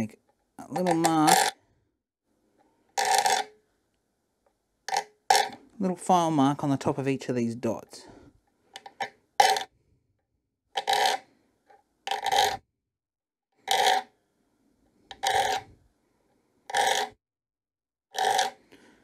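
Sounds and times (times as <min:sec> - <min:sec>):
file scraping steel: 0:12.1 - 0:12.6, 0:15.1 - 0:15.7, 0:16.7 - 0:17.2, 0:18.2 - 0:18.6.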